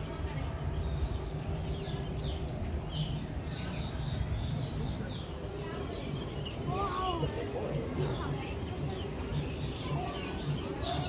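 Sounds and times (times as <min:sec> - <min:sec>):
small birds chirping: 0:00.3 - 0:11.0.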